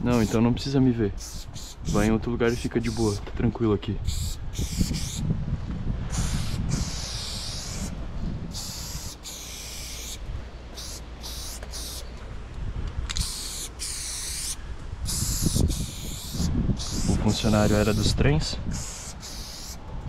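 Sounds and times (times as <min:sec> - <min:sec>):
spray-paint can hissing: 0:00.1 - 0:00.4, 0:01.2 - 0:03.2, 0:04.1 - 0:05.2, 0:06.1 - 0:07.9, 0:08.5 - 0:10.2, 0:10.8 - 0:12.1, 0:13.1 - 0:18.1, 0:18.7 - 0:19.8.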